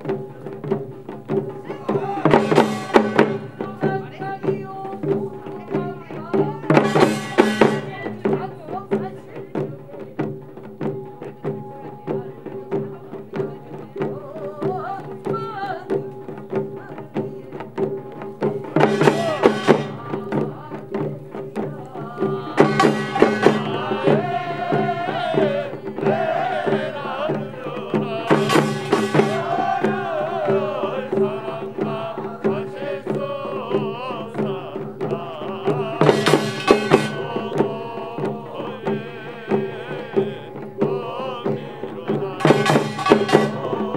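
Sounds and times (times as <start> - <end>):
folk percussion band drumming: 0.0 - 43.9
wavering melody: 10.9 - 21.0, 22.4 - 33.0.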